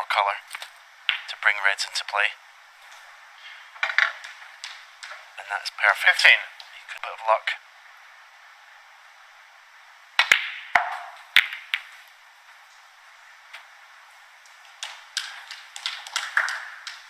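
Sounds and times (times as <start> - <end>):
snooker balls clicking: 0.6 - 1.4, 3.7 - 5.4, 10.2 - 12.0, 14.4 - 17.0.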